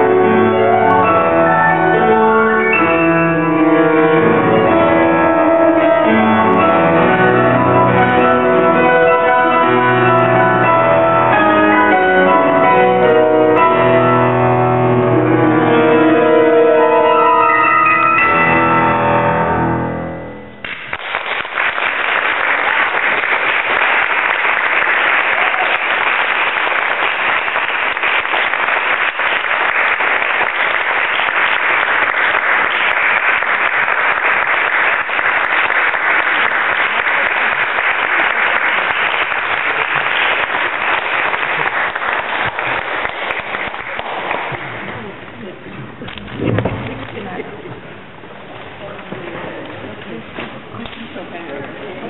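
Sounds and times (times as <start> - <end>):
grand piano chord: 0.0 - 20.7
audience applause: 20.6 - 47.6.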